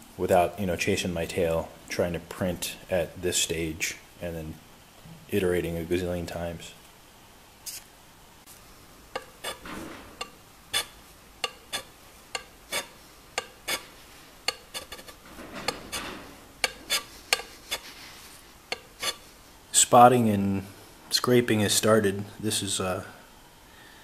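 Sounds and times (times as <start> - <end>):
hand scraper scraping metal: 9.2 - 18.0, 18.7 - 19.2.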